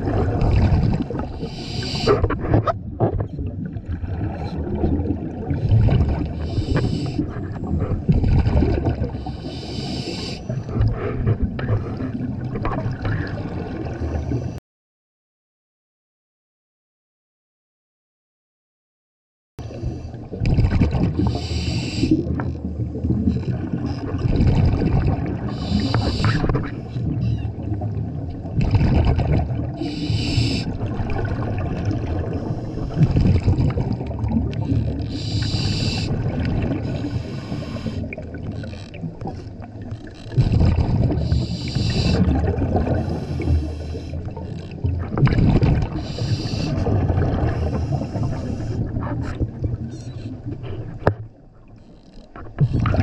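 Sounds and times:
rumbling exhaled bubbles: 0.0s - 9.2s, 20.0s - 21.4s, 22.2s - 51.6s, 52.5s - 53.0s
hissing regulator inhale: 1.3s - 2.2s, 6.4s - 7.4s, 9.0s - 10.6s, 21.2s - 22.3s, 25.5s - 26.5s, 29.8s - 30.8s, 32.3s - 33.2s, 35.0s - 36.2s, 36.8s - 38.3s, 41.1s - 44.4s, 45.9s - 46.9s, 47.5s - 48.9s.

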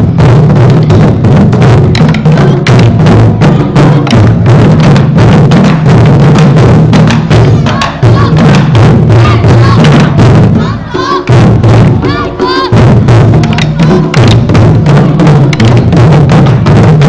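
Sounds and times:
taiko drums beating: 0.0s - 17.0s.

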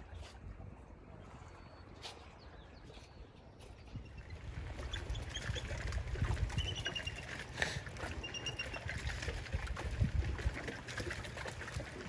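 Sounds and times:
water lapping and splashing: 0.0s - 12.0s.

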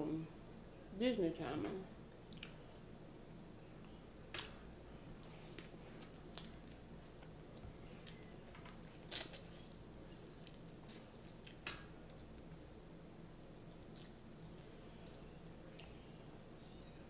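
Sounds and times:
quiet chewing and squishing: 1.9s - 2.7s, 5.1s - 17.0s.

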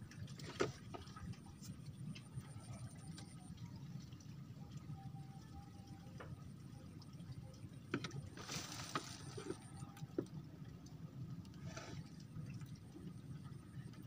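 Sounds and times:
water splashing: 8.0s - 9.9s.

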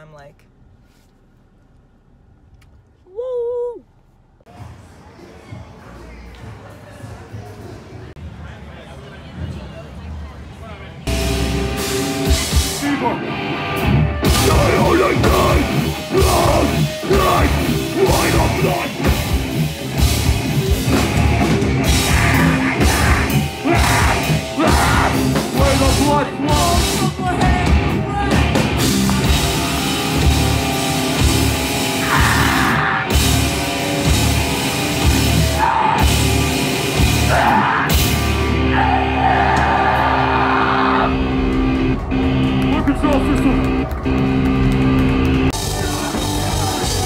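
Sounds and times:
bass guitar: 11.1s - 47.0s
drum kit: 11.1s - 47.0s
electric guitars: 11.1s - 47.0s.

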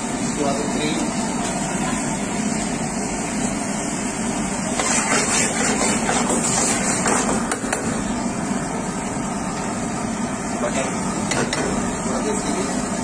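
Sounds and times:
kitchen equipment roar: 0.0s - 13.0s
ladle scraping metal pan: 4.8s - 7.4s.

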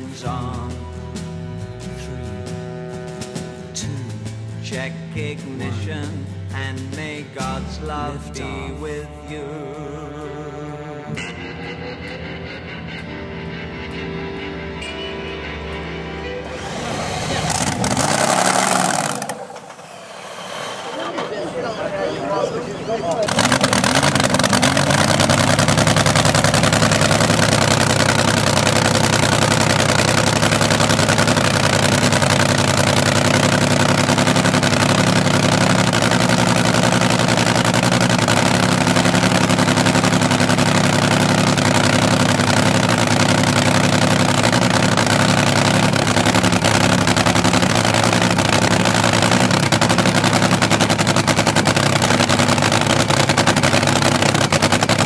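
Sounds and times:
dragster engine idling: 16.5s - 19.9s, 20.8s - 55.0s.

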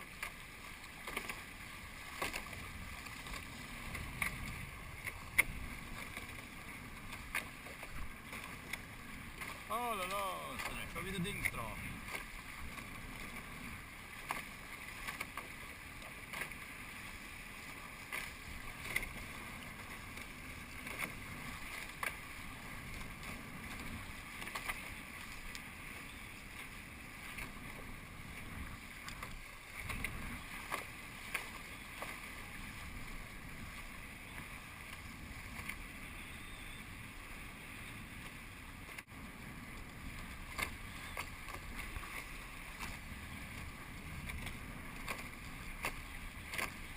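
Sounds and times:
small waves slapping hull: 0.0s - 46.9s
water rushing past hulls: 0.0s - 46.9s
wind on microphone: 2.5s - 7.0s.

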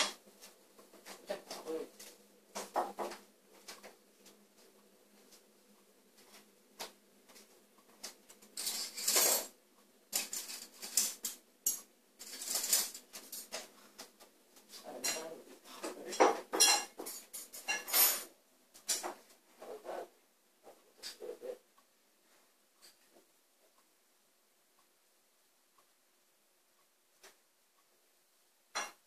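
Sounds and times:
dishes and cutlery clinking: 0.0s - 3.8s, 8.0s - 19.3s, 20.7s - 21.4s, 28.7s - 29.0s.

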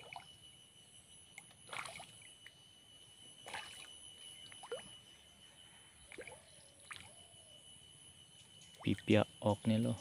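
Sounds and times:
faint water splashes and drips: 1.4s - 2.3s, 3.4s - 3.9s, 6.1s - 7.1s.

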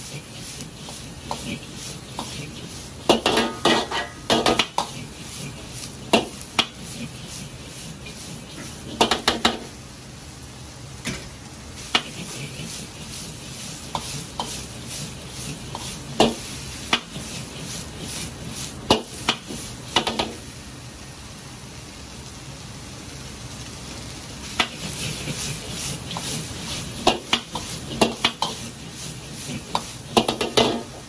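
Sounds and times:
metal ladle scraping a wok: 0.0s - 9.1s, 24.6s - 31.0s
gas burner noise: 0.0s - 31.0s
onions sizzling in a wok: 0.0s - 31.0s.

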